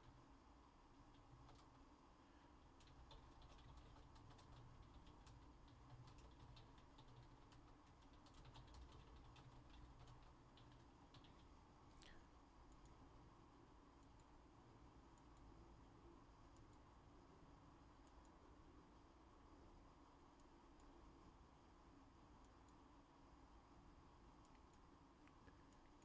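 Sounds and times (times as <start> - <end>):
low room hum: 0.0 - 26.0
keyboard typing and clicks: 1.1 - 1.9, 2.6 - 11.6.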